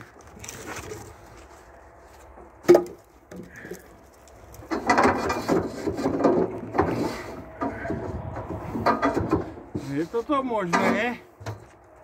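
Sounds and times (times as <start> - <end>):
logs scraping and knocking: 0.0 - 12.0.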